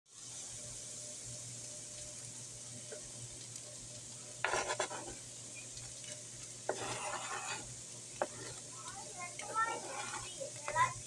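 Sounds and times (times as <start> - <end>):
meat sizzling in a frying pan: 0.1 - 11.0
scraping on plastic cutting board: 4.4 - 5.2, 6.7 - 8.6, 9.4 - 10.8.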